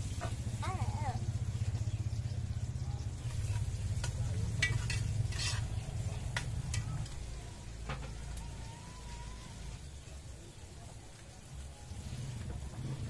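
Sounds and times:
low steady rumble: 0:00.0 - 0:10.6
food sizzling in pot: 0:00.0 - 0:13.0
metal ladle scraping pot: 0:03.3 - 0:07.0.

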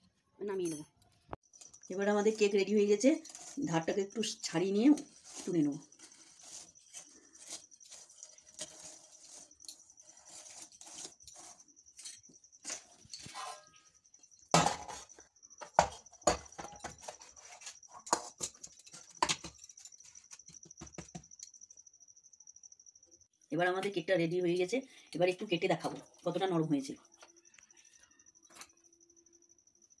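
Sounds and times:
spoon scraping steel cake tin: 0:01.5 - 0:13.9, 0:14.5 - 0:20.5.

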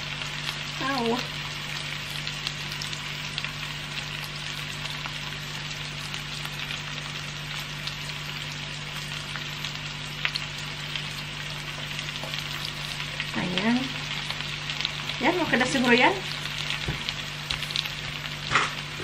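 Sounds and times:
vegetables sizzling in a frying pan: 0:00.0 - 0:19.0.

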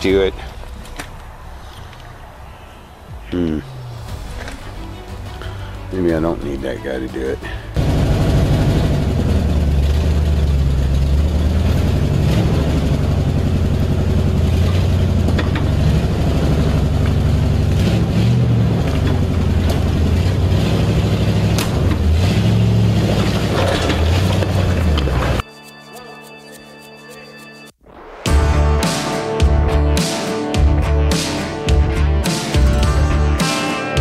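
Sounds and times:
truck engine running under load: 0:07.8 - 0:25.4.

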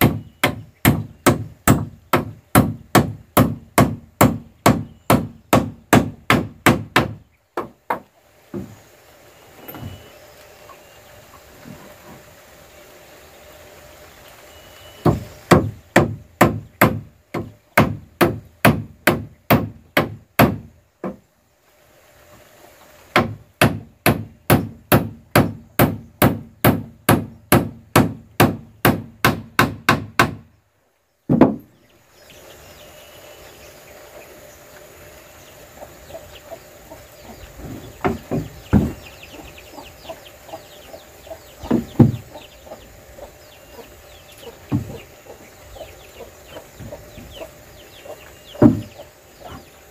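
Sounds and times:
wood knocking on wood: 0:31.3 - 0:31.7, 0:38.0 - 0:39.0, 0:41.6 - 0:42.2, 0:44.7 - 0:45.0, 0:48.6 - 0:48.9.

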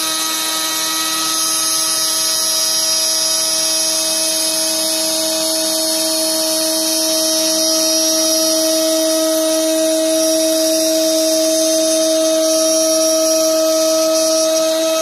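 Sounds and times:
router spindle whine milling wood: 0:00.0 - 0:15.0.

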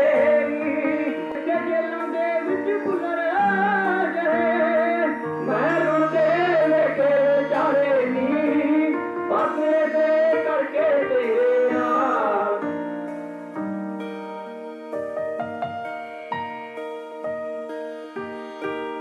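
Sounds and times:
man singing ornamented melody: 0:00.0 - 0:12.9
sustained instrumental notes: 0:00.0 - 0:19.0.

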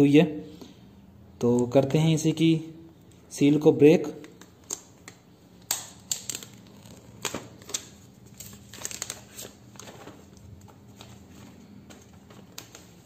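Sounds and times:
plastic wrap crinkling and tearing: 0:04.3 - 0:13.0.

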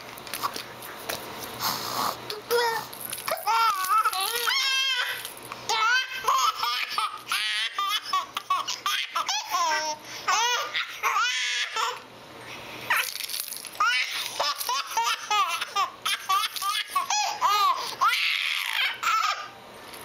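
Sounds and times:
babies giggling: 0:05.7 - 0:12.0, 0:13.8 - 0:19.5.

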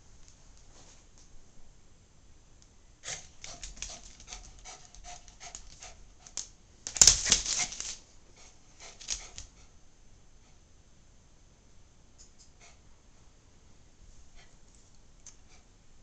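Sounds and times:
dog clicking and huffing: 0:03.0 - 0:09.7.

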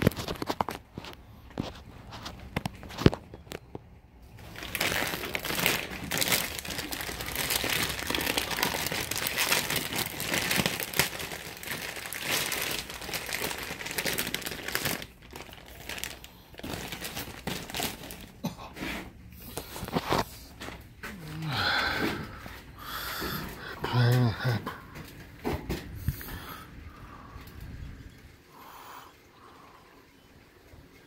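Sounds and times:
packing material crinkling: 0:00.0 - 0:24.1.

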